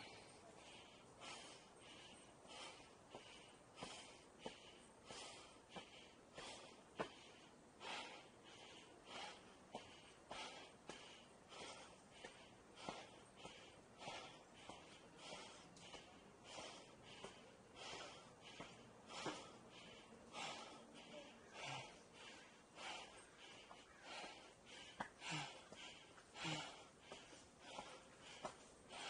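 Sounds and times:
person breathing hard: 0:00.0 - 0:29.0
footsteps on stairs: 0:09.2 - 0:20.7, 0:21.6 - 0:29.0.

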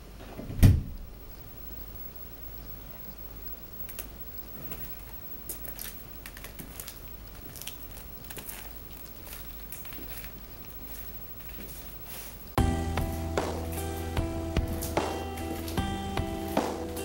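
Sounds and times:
low steady hum: 0:00.0 - 0:17.0
soft footsteps: 0:04.5 - 0:17.0
music: 0:12.6 - 0:17.0.

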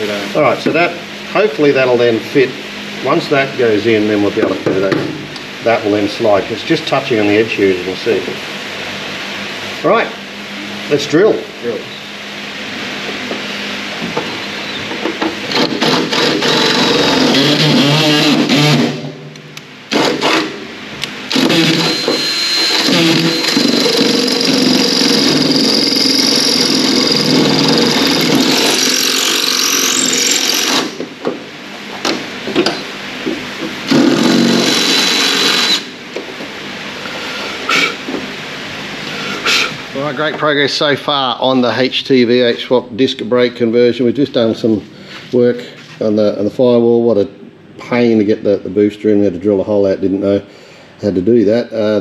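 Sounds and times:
drill bit squealing: 0:14.3 - 0:14.9, 0:15.5 - 0:18.9, 0:21.3 - 0:30.9, 0:33.9 - 0:35.9
drill boring through metal: 0:15.4 - 0:19.0, 0:19.9 - 0:20.6, 0:21.3 - 0:31.0, 0:33.9 - 0:35.9.

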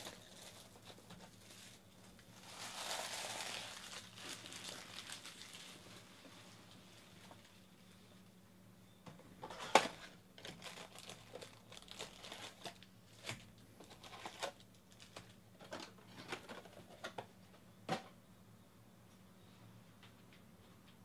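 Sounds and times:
foil packs crinkling and rustling: 0:00.0 - 0:07.7, 0:09.5 - 0:15.4.

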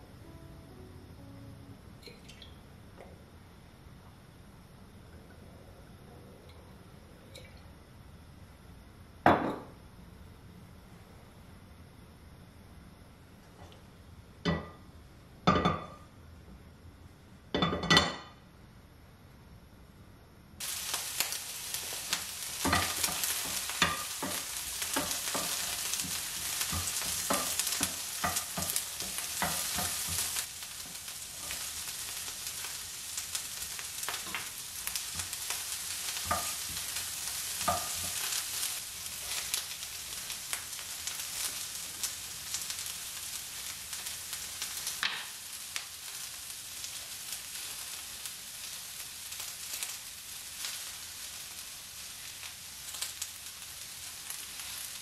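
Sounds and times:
vegetables sizzling in oil: 0:20.6 - 0:55.0.

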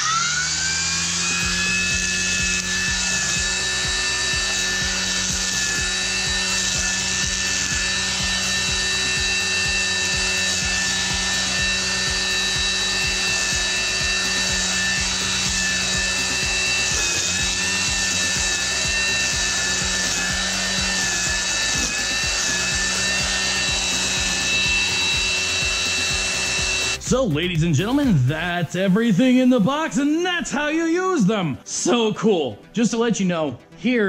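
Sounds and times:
line cutting grass: 0:00.0 - 0:27.1
string trimmer whining: 0:00.0 - 0:31.4.

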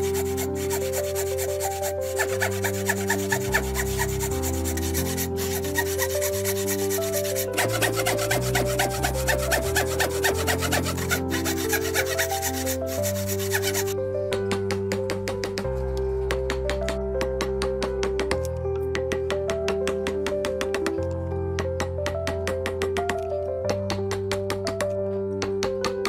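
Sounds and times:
hand saw cutting wood: 0:00.0 - 0:14.0
background music with held notes: 0:00.0 - 0:26.0.

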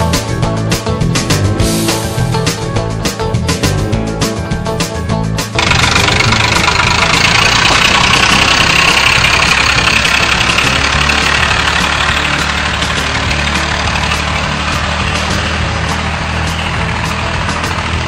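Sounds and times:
engine running: 0:00.0 - 0:18.0
loud hiss: 0:01.7 - 0:02.5.

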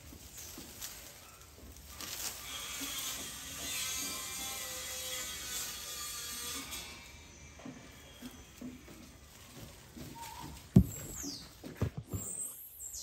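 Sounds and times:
leaves rustling: 0:00.0 - 0:03.2, 0:08.2 - 0:12.5
knocks on metal roof: 0:10.8 - 0:11.2
loud thump: 0:10.8 - 0:11.2.

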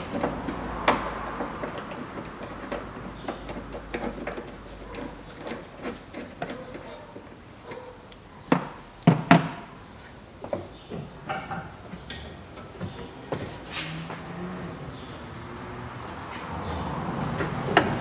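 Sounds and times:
metal knocks: 0:10.5 - 0:12.0.

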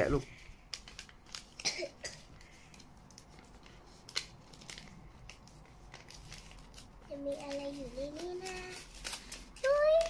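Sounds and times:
paper crinkling and rustling: 0:00.2 - 0:10.0.

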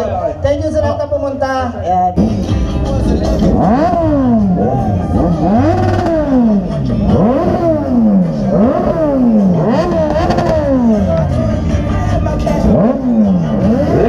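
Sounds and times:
motorcycle engine revving: 0:02.2 - 0:14.0.

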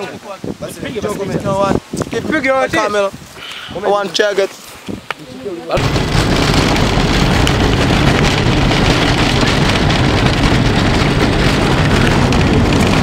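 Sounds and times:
car engine and road noise: 0:05.8 - 0:13.0.

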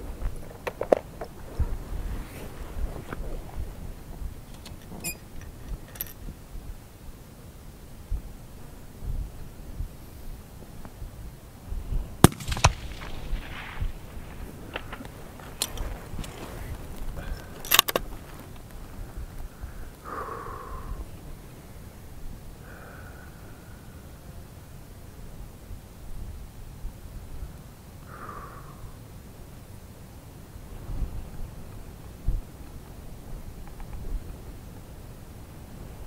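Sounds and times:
wind buffeting microphone: 0:00.0 - 0:06.9, 0:11.0 - 0:21.5
rifle shots: 0:12.2 - 0:14.1
light sharp clicks: 0:33.6 - 0:34.4.

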